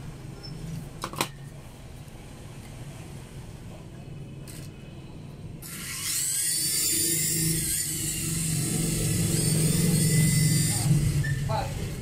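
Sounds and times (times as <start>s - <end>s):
toy helicopter motors whining: 5.6s - 11.6s
low rotor hum: 5.8s - 12.0s.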